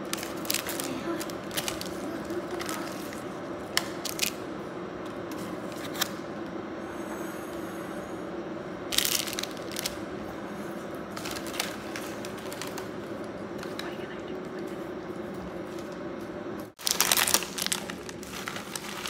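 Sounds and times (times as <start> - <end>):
plastic packets crinkling: 0.0 - 4.4, 8.9 - 10.0, 11.2 - 13.8, 16.8 - 19.0
steady low hum: 0.0 - 19.0.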